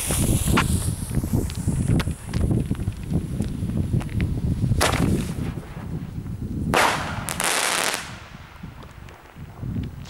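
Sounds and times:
firework launch shot: 0.0s - 2.5s, 4.7s - 6.0s, 6.7s - 8.7s
firework shell bursting: 0.0s - 3.1s.

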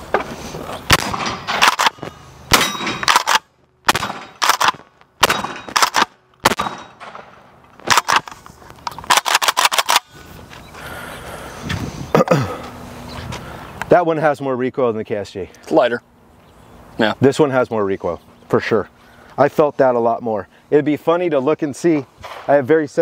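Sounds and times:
shotgun shots: 0.9s - 8.3s
shotgun slide racking: 7.8s - 10.1s.

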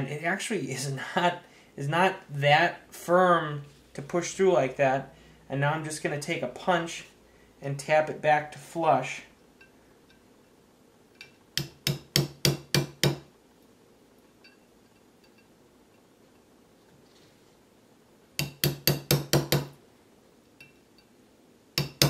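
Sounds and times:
hammer tapping steel punch: 11.2s - 13.3s, 18.4s - 19.8s, 21.8s - 22.0s.

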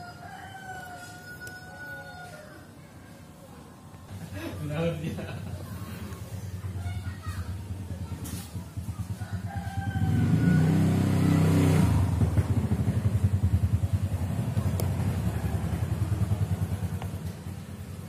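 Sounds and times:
engine running with pulsing beat: 7.6s - 18.0s.

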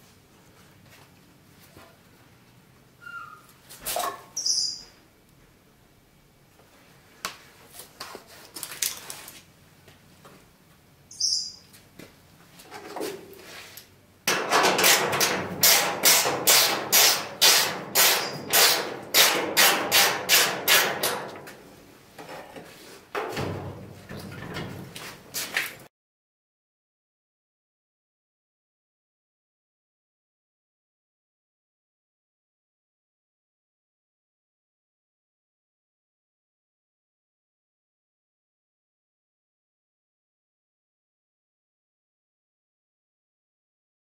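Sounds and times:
hammer blows on sheet metal: 14.3s - 21.6s.

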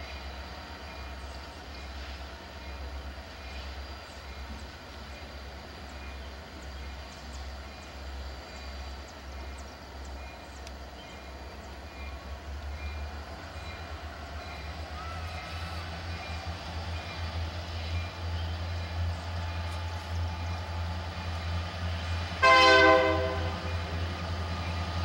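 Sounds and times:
locomotive engines rumbling: 0.0s - 25.0s
faint light clicks: 10.6s - 10.8s.

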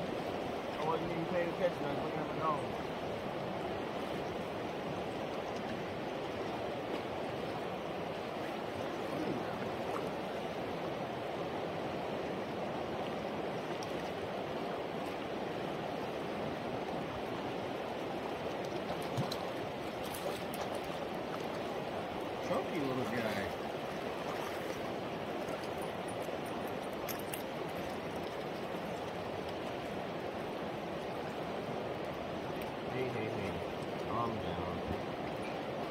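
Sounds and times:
river water rushing: 0.0s - 35.9s.

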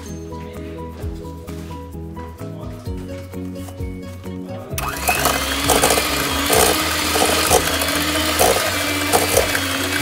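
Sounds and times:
beaters knocking metal bowl: 4.8s - 10.0s
electric hand mixer whining: 4.8s - 10.0s.

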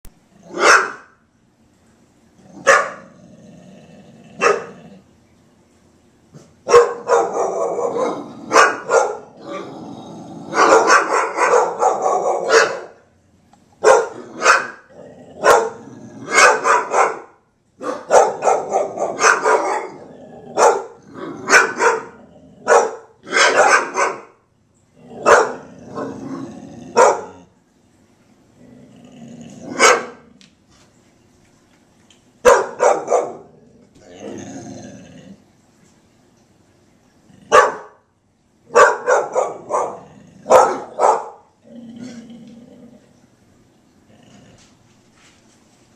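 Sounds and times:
dogs barking: 0.4s - 1.2s, 2.6s - 3.1s, 4.4s - 4.8s, 6.4s - 9.6s, 10.5s - 13.0s, 13.8s - 24.4s, 25.2s - 26.2s, 26.9s - 27.4s, 29.7s - 30.2s, 32.4s - 33.5s, 37.5s - 38.0s, 38.7s - 41.5s
dog growling: 2.4s - 5.1s, 7.2s - 11.0s, 14.1s - 16.4s, 18.6s - 23.4s, 25.0s - 27.6s, 28.6s - 30.4s, 33.2s - 35.5s, 39.5s - 41.0s, 41.6s - 43.2s, 44.0s - 44.8s.

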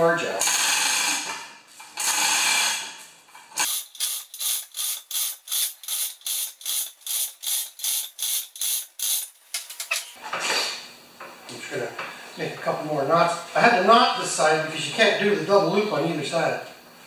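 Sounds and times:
ratchet clicks: 3.6s - 10.1s.

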